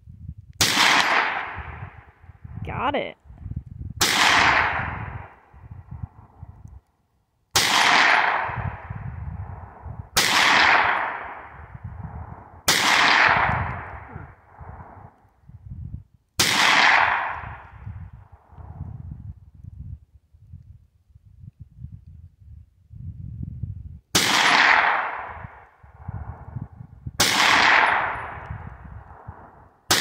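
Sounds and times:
gunshots with long echo: 0.6s - 2.2s, 4.0s - 5.6s, 7.5s - 15.2s, 16.4s - 17.8s, 24.1s - 26.1s, 27.2s - 30.0s.

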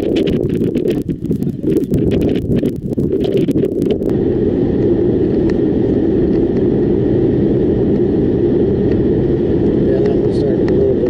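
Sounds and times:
car driving at highway speed: 0.0s - 11.0s
wind buffeting microphone: 0.0s - 11.0s.

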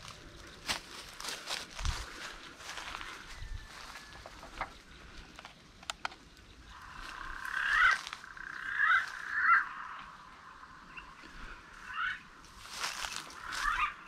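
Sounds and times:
sharp clicks: 5.3s - 6.3s
animal calling: 6.7s - 14.0s.

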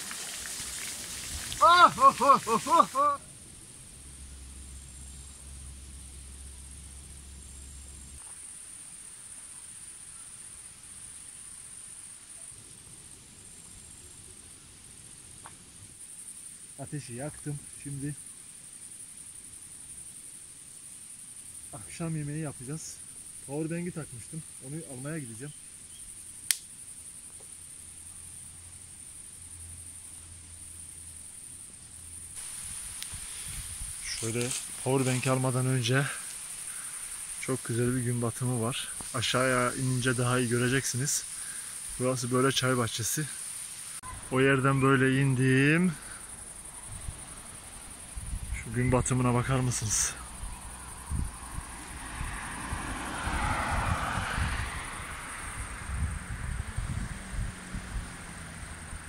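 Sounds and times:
insects trilling: 0.0s - 59.0s
low hum: 3.3s - 8.2s.

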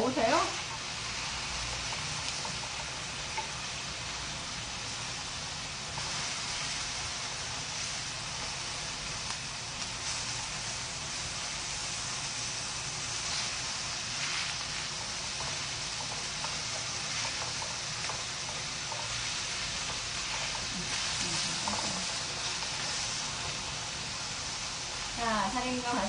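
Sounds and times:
food sizzling in a frying pan: 0.0s - 26.0s
chopsticks tapping: 15.3s - 23.6s.

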